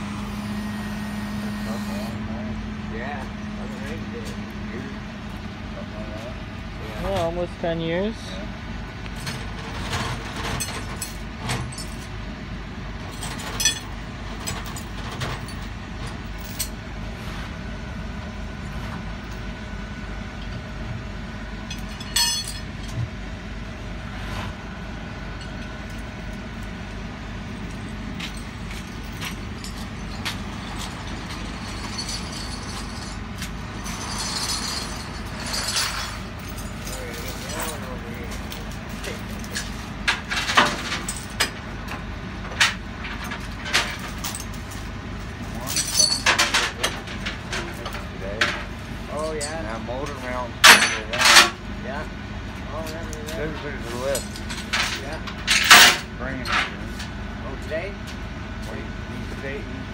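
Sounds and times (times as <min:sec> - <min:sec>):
truck engine idling: 0:00.0 - 0:59.9
metal chains clinking: 0:09.2 - 0:12.1, 0:13.1 - 0:16.8, 0:21.7 - 0:23.0, 0:27.6 - 0:41.6, 0:43.0 - 0:48.1, 0:53.4 - 0:56.7.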